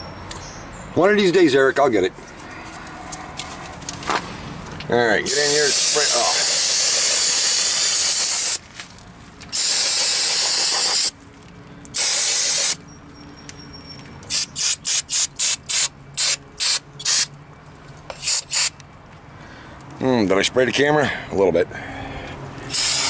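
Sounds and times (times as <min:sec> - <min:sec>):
aerosol can spraying: 0:05.3 - 0:08.6, 0:09.5 - 0:11.1, 0:12.0 - 0:12.8, 0:14.3 - 0:17.3, 0:18.2 - 0:18.7, 0:22.7 - 0:23.0.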